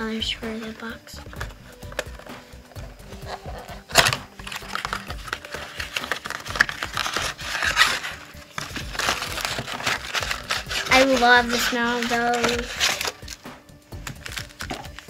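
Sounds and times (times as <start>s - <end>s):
cardboard and wrappers crinkling: 0.1s - 13.4s, 14.0s - 15.0s
sharp ripping of packaging: 3.3s - 13.4s, 14.0s - 15.0s.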